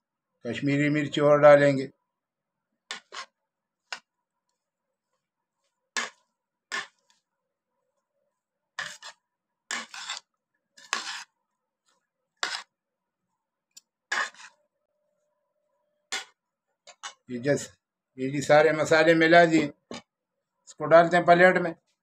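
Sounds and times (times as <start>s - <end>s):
spoons scraping ceramic plate: 2.9s - 4.1s, 6.0s - 7.2s, 8.8s - 11.4s, 12.4s - 12.7s, 14.1s - 14.6s, 16.1s - 17.3s
onion rings rustling: 8.8s - 12.7s.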